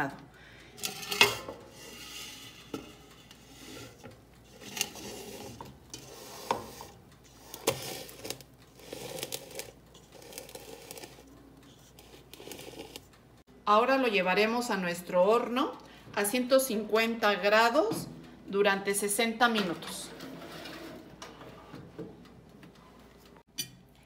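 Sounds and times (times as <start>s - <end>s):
batter scraping from bowl: 0.8s - 13.1s.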